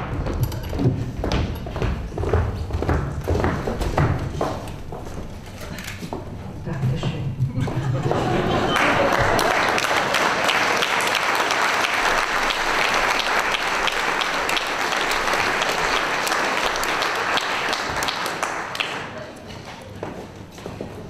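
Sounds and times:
audience applauding: 8.0s - 19.2s.

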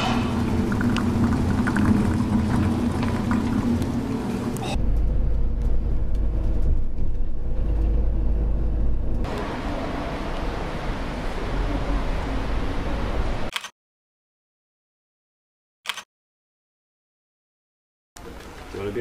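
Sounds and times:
steady hum: 0.0s - 13.5s.

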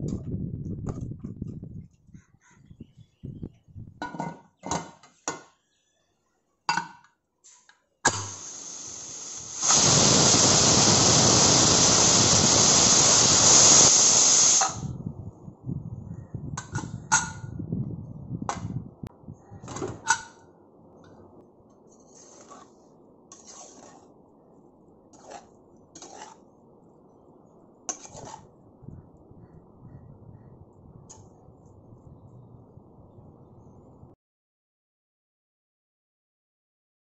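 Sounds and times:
pressure cooker whistle hiss: 8.1s - 15.0s.

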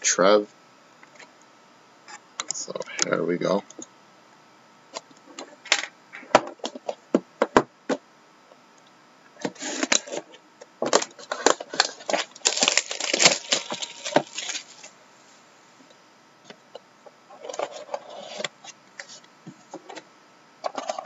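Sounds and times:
plastic wrap crinkling and tearing: 10.9s - 14.9s
pen piercing plastic wrap: 11.8s - 14.9s.

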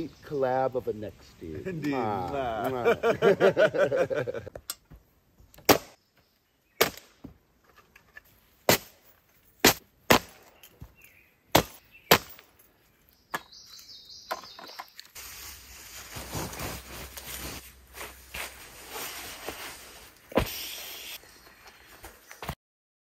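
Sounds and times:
hatchet chopping wood: 5.6s - 6.0s, 6.8s - 7.2s, 8.6s - 9.0s, 9.6s - 10.5s, 11.5s - 12.4s
rustling of camping gear: 12.6s - 22.6s.

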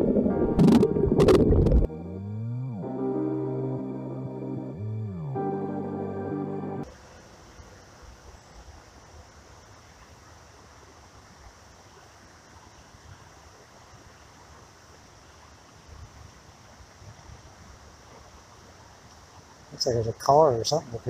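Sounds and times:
wind rumbling on microphone: 0.0s - 1.9s, 15.8s - 19.1s
steady high hiss: 5.4s - 21.0s.

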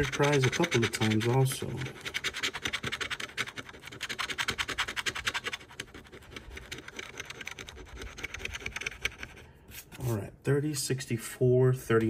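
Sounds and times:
coin scraping lottery ticket: 0.0s - 9.4s.

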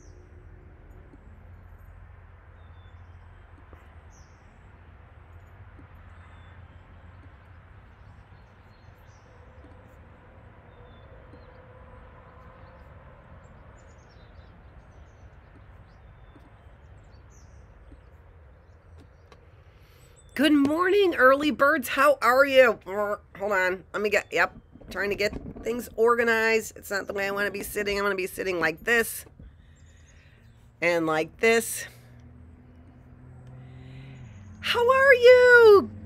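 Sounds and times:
birds chirping faintly: 0.0s - 36.0s
low outdoor hum: 0.0s - 36.0s.

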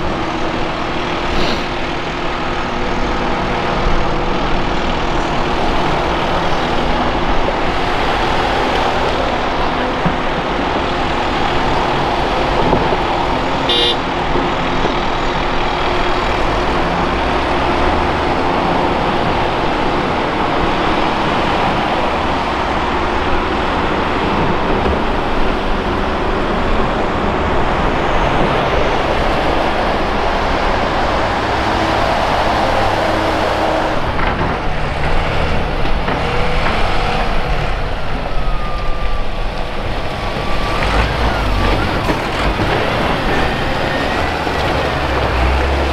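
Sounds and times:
diesel engines running under load: 0.0s - 45.9s
brief high tone: 13.7s - 14.1s.

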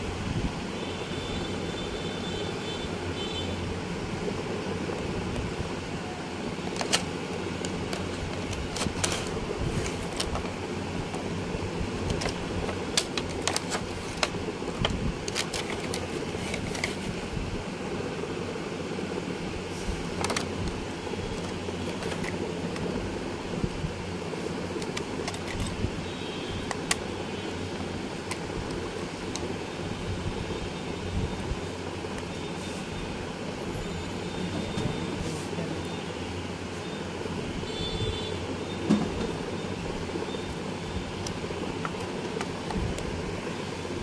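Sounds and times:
plastic packaging crinkling: 6.6s - 10.6s, 12.0s - 17.2s.

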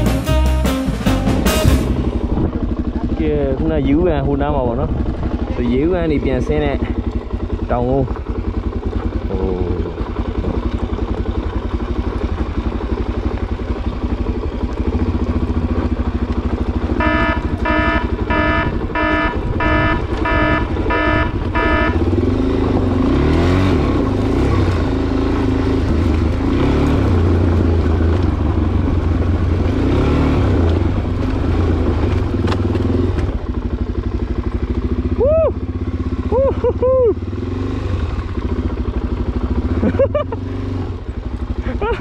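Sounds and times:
motorcycle engine revving: 0.0s - 42.0s
beeping tone: 17.0s - 22.2s.

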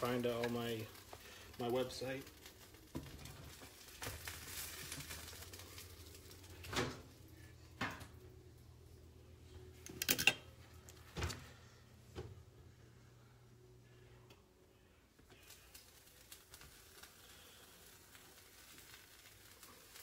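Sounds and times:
low steady hum: 0.0s - 20.0s
kitchen items knocking and clattering: 7.7s - 8.2s.

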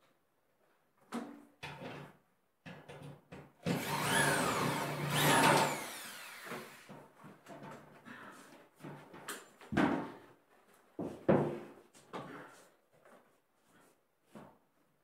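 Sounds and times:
power drill drilling into wall: 3.6s - 6.9s.

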